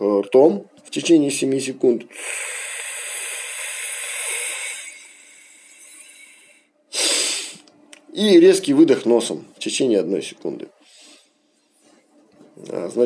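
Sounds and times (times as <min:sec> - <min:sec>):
man inhaling through mouth: 0:02.1 - 0:07.6
sharp nasal exhale: 0:02.1 - 0:07.6, 0:10.8 - 0:11.4.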